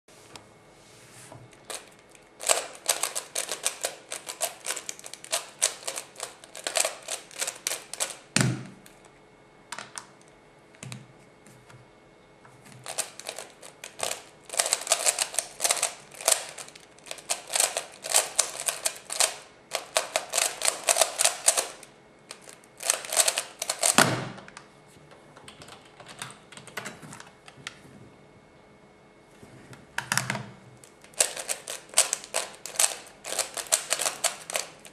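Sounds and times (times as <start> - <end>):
puzzle cube plastic clicking: 2.4 - 8.2, 31.0 - 34.9.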